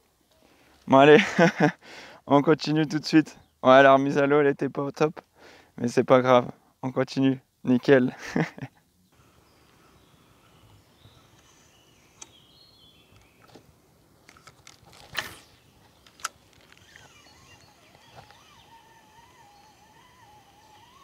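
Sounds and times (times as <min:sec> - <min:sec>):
sharp clicks: 0:12.2 - 0:12.4, 0:14.2 - 0:18.8.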